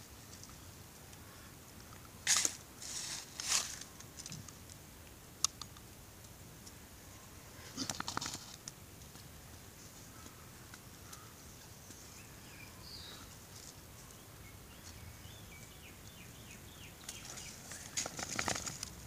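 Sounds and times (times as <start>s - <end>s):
twig and sand rustling: 0.0s - 19.0s
scratchy rustling: 2.3s - 3.9s.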